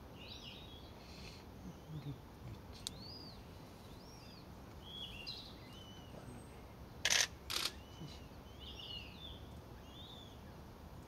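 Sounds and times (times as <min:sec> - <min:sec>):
birds chirping: 0:02.8 - 0:10.7.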